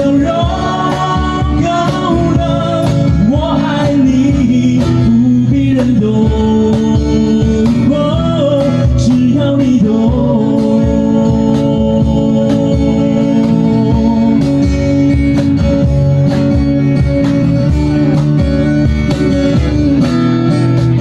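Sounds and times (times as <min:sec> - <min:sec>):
man singing ballad: 0:00.0 - 0:15.4
cajon beat: 0:00.0 - 0:21.0
strummed acoustic guitars: 0:00.0 - 0:21.0.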